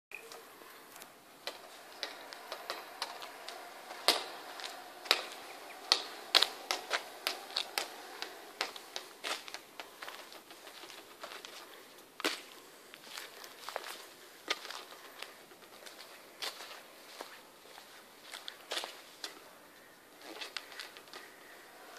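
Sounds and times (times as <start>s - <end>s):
footsteps on asphalt: 0.6s - 21.9s
ball kicked and bouncing on asphalt: 1.4s - 11.4s.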